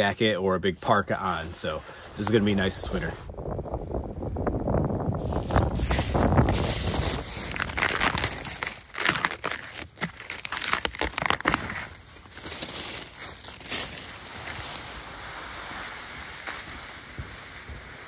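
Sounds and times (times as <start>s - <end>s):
footsteps crunching dry leaves: 5.5s - 18.0s
steady background hiss: 13.1s - 18.0s.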